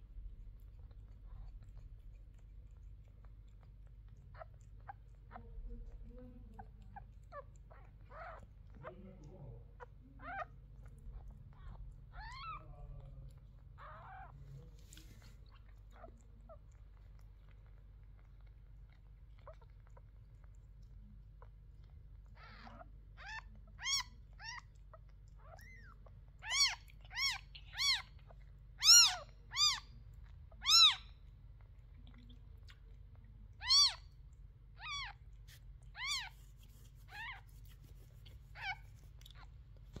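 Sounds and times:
kittens mewing: 6.6s - 16.7s, 22.3s - 24.7s, 25.4s - 28.2s, 28.8s - 29.9s, 30.6s - 31.1s, 33.6s - 34.2s, 34.8s - 36.4s.

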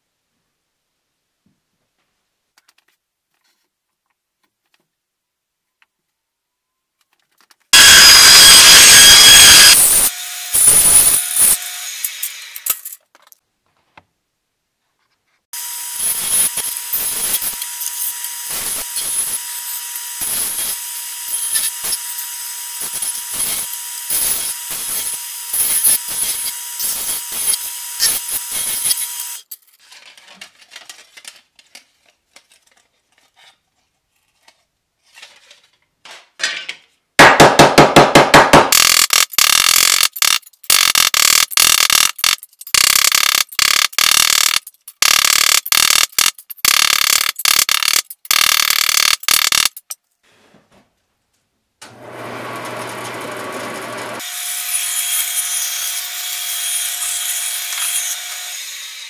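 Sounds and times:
sander grinding metal edges: 7.8s - 12.8s, 15.6s - 29.6s, 51.9s - 59.0s
bandsaw cutting metal: 7.8s - 12.9s, 15.6s - 29.6s, 38.7s - 49.8s, 51.9s - 59.0s.

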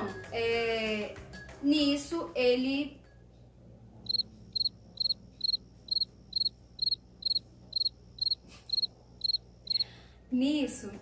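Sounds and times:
cricket chirping: 4.1s - 10.0s.

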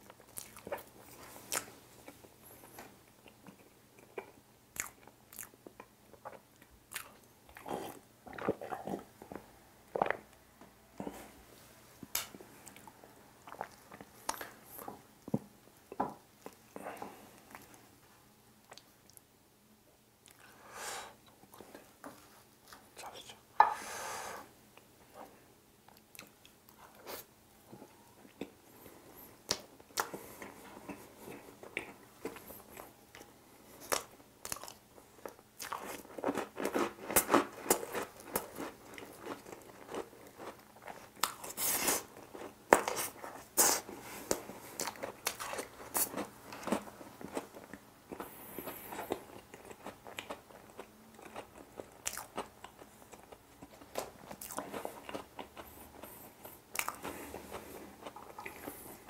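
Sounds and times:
chewing and biting cake: 0.0s - 10.3s, 29.4s - 59.0s.

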